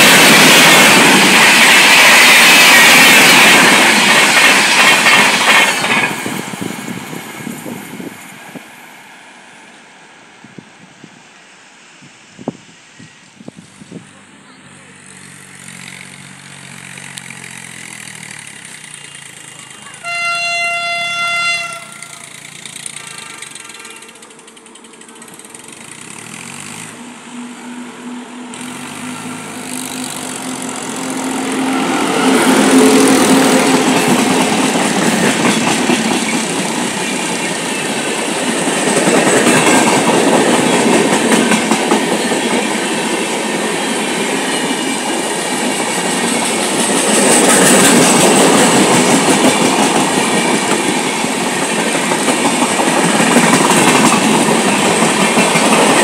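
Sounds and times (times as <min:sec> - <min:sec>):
train coaches clattering: 0:00.0 - 0:08.7, 0:14.3 - 0:56.0
train passing with rush and rumble: 0:00.0 - 0:56.0
locomotive horn blast: 0:19.9 - 0:22.3, 0:22.9 - 0:24.3.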